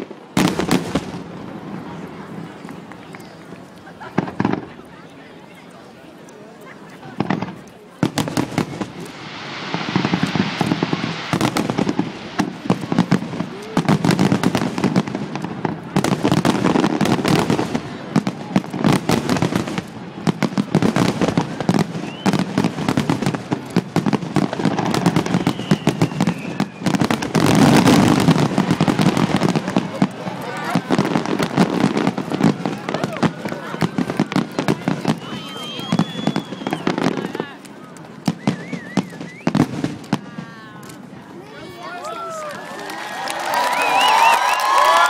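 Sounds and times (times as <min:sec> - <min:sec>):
continuous firework crackle: 0:00.0 - 0:45.0
firework shells bursting: 0:07.2 - 0:17.7.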